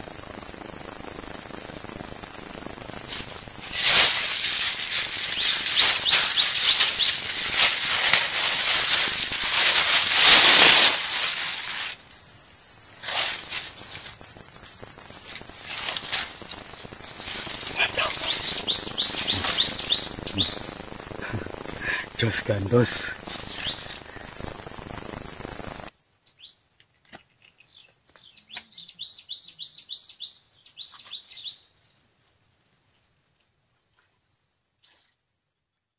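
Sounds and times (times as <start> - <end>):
high-pitched insects shrilling: 0.0 - 35.3
rustling and handling noise: 3.0 - 14.4.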